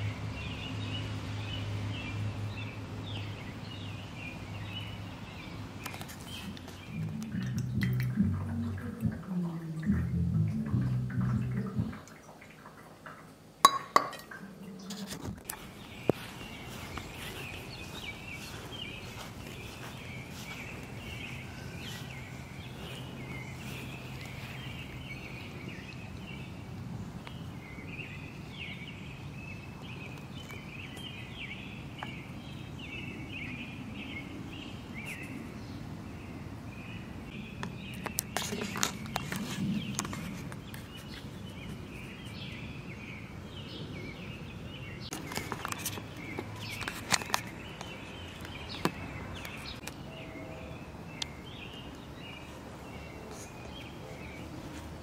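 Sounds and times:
birds chirping: 0.0 - 55.0
footsteps: 14.9 - 25.0.

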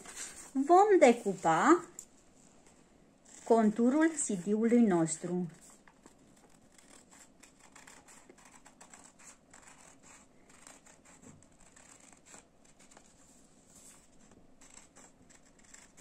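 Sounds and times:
paper rustling: 0.0 - 0.6
scissors snipping paper: 3.3 - 13.2, 13.9 - 16.0.

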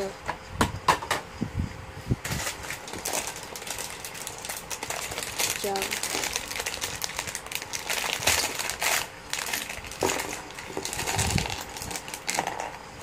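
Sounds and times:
plastic bag crinkling: 2.3 - 12.8
plastic pieces clicking and rattling: 2.4 - 12.8.

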